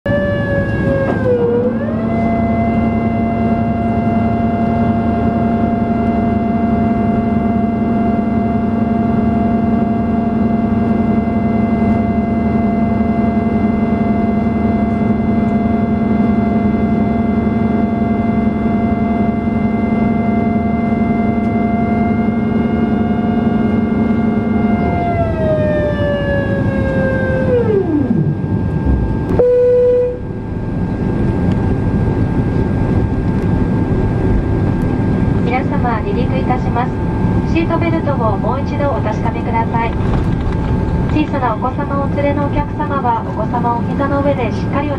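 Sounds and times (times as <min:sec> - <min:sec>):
aircraft engine whine: 0:00.1 - 0:44.9
aircraft systems hum: 0:00.1 - 0:44.9.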